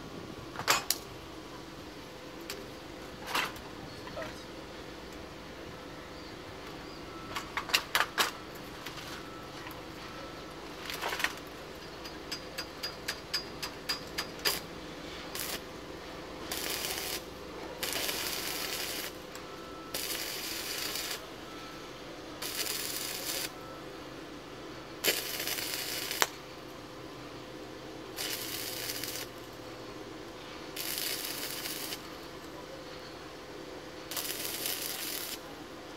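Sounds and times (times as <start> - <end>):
arc welding crackling: 0.9 - 1.2, 2.3 - 3.7, 7.4 - 21.4, 22.4 - 24.0, 24.9 - 26.9, 27.9 - 35.9
electrode tapping on metal: 11.8 - 14.6.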